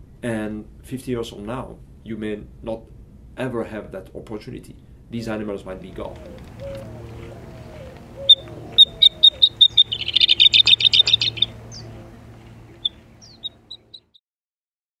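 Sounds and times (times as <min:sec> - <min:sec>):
songbird singing: 0:05.8 - 0:14.2.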